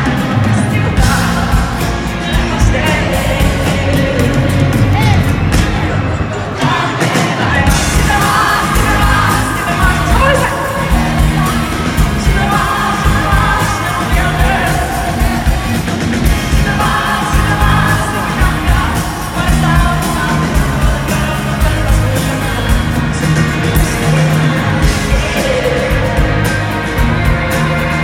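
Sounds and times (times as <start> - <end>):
crowd shouting: 0.0 - 28.0
live pop-rock band: 0.0 - 28.0
woman singing: 6.6 - 15.8.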